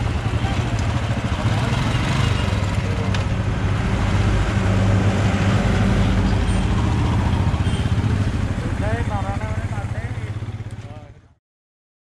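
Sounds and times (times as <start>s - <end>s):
motorcycle engine idling: 0.0s - 3.8s, 6.5s - 11.3s
road traffic: 0.0s - 11.4s.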